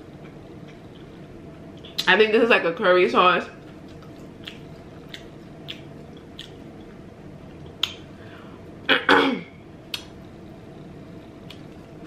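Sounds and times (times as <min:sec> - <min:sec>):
person chewing: 0:03.6 - 0:08.1.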